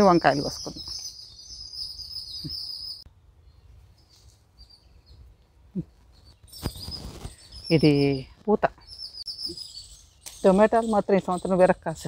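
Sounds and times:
birds chirping in a trill: 0:00.0 - 0:05.4, 0:06.0 - 0:12.0
garden ambience: 0:00.0 - 0:12.0.

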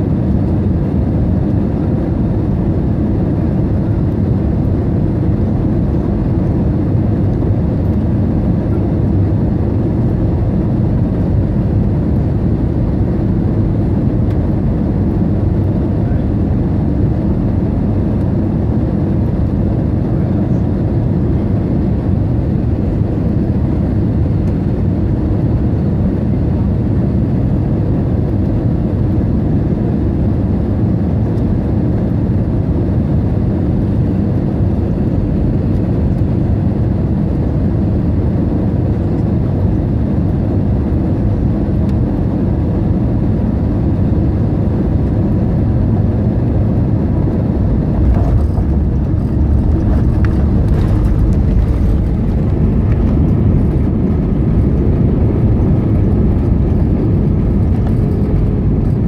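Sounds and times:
engine and airflow rush: 0:00.0 - 0:59.0
landing gear rumbling on runway: 0:46.8 - 0:59.0.

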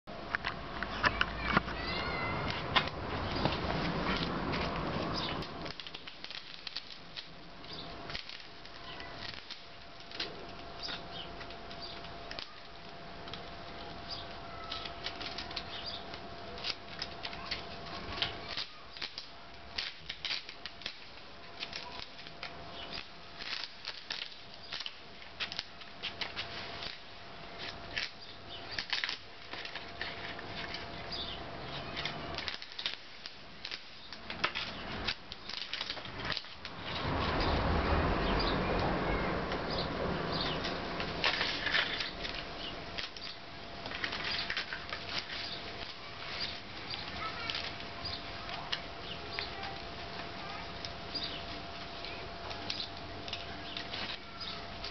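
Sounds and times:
masking tape peeling: 0:00.8 - 0:54.9.

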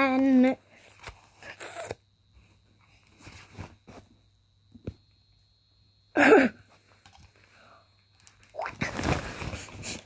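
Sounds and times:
bedcovers rustling: 0:03.1 - 0:04.2, 0:08.6 - 0:10.0.

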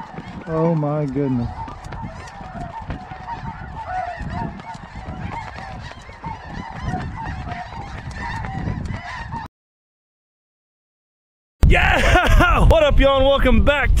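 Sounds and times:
geese honking: 0:00.0 - 0:09.5
wind rumble: 0:00.0 - 0:09.5.

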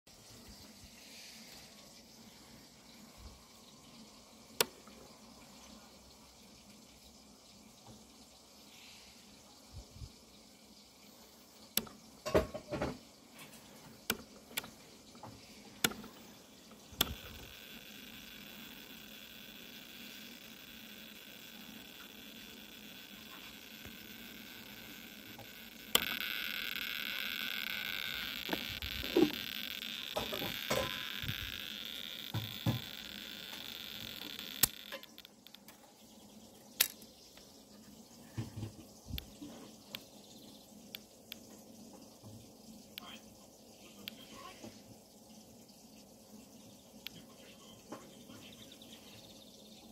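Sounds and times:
faint steady buzz: 0:00.1 - 0:49.9
steady high hiss: 0:00.1 - 0:49.9
rotary switch clicking: 0:15.8 - 0:16.2, 0:16.9 - 0:35.7.

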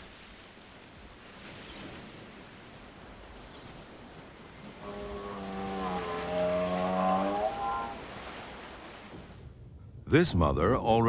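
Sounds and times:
surf: 0:00.0 - 0:09.6
wind: 0:00.0 - 0:11.0
long low animal call: 0:04.7 - 0:08.3.

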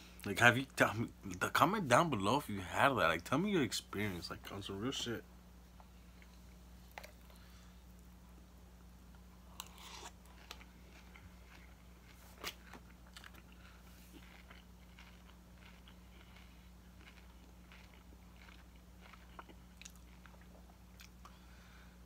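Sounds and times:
low steady hum: 0:00.0 - 0:22.0
chewing crunchy food: 0:09.4 - 0:21.4.

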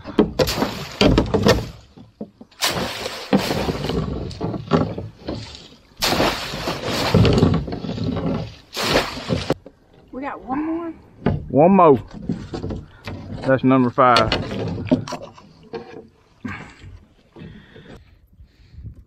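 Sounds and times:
water splashing: 0:00.0 - 0:10.8.

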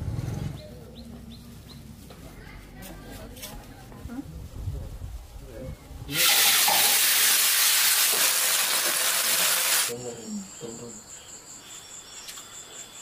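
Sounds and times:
loud even hiss: 0:06.1 - 0:10.0
insects chirping: 0:07.4 - 0:13.0.

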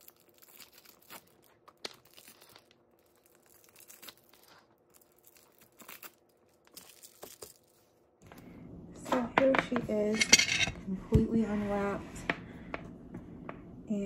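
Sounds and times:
wrapping crinkling and tearing: 0:00.0 - 0:08.1.

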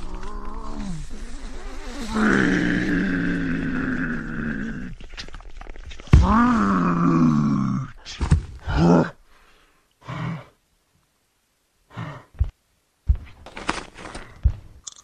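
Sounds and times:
woman breathing heavily: 0:11.9 - 0:12.6
dull low thumps: 0:12.3 - 0:13.4.

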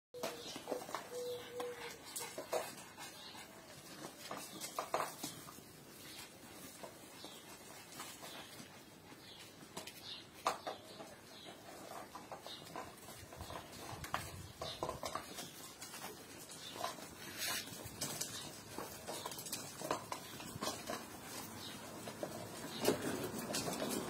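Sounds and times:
puppies digging in soil: 0:00.2 - 0:24.0
paws scrabbling on gravel: 0:11.9 - 0:24.0.

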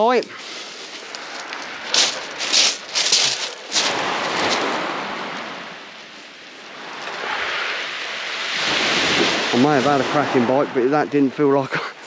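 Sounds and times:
small waves washing on shingle: 0:00.0 - 0:10.9
boots crunching on pebbles: 0:00.3 - 0:05.0.

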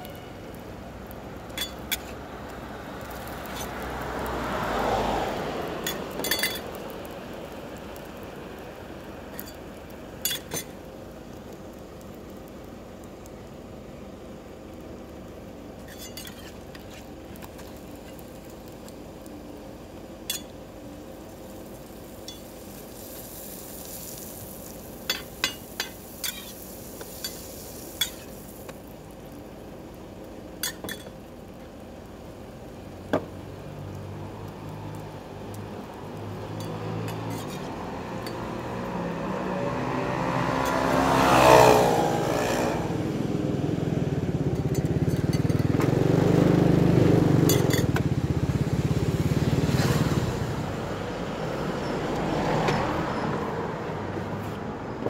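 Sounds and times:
roti sizzling on a griddle: 0:00.0 - 0:54.6
motorcycle passing: 0:02.9 - 0:06.7, 0:33.7 - 0:54.9
metal spatula scraping pan: 0:15.8 - 0:17.1.

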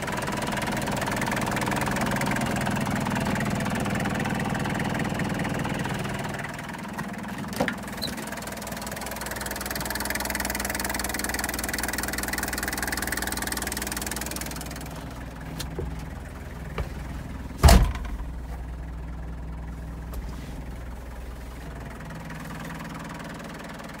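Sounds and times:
diesel engine idling: 0:00.0 - 0:24.0
loud thump: 0:17.6 - 0:18.3.

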